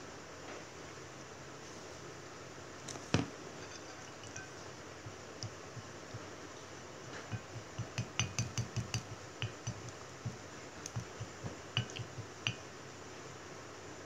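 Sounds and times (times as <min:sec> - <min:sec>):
chopsticks clicking on ceramic bowl: 0:07.3 - 0:12.6.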